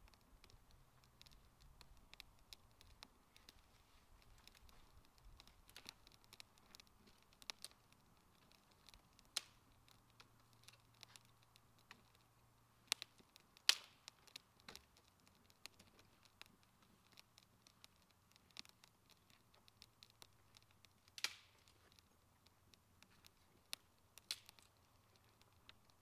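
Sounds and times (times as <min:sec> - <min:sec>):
campfire crackling: 0:00.0 - 0:26.0
fire snapping: 0:00.0 - 0:26.0.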